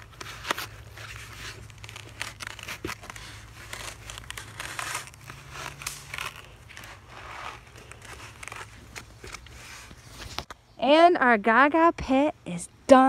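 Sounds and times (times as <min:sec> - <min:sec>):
foam squeaking against wood: 0:00.0 - 0:10.4.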